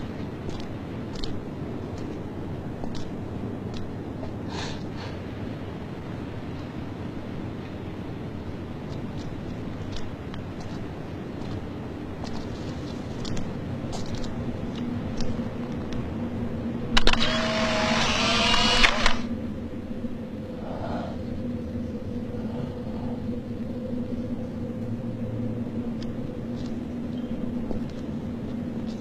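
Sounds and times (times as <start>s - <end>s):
steady low hum: 0.0s - 29.0s
camera motor whirring: 17.0s - 19.3s
camera shutter click: 17.0s - 19.3s.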